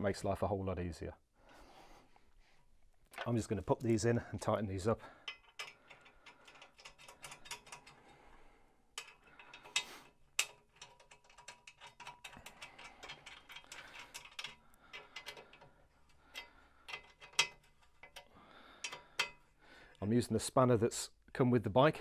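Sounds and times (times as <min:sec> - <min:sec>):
spanner clicking on bolts: 0:05.2 - 0:08.0, 0:09.0 - 0:19.4.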